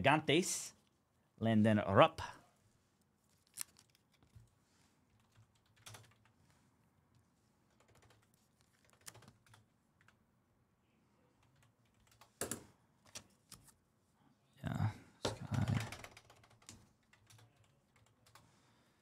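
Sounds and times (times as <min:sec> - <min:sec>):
computer keyboard clicks: 0:07.8 - 0:09.6, 0:15.5 - 0:18.4.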